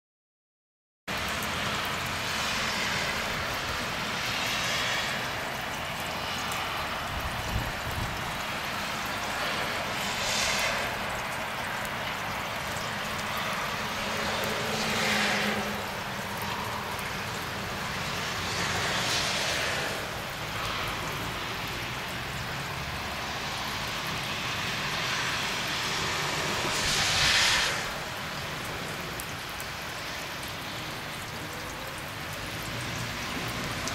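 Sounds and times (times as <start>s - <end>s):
freezing rain on pavement: 1.1s - 33.9s
louder hiss: 26.2s - 28.0s.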